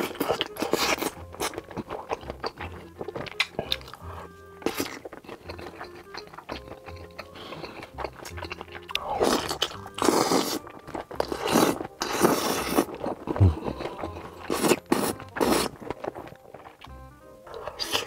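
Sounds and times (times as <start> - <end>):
chewing: 0.0 - 18.0
man slurping noodles: 9.0 - 10.6, 11.3 - 15.8.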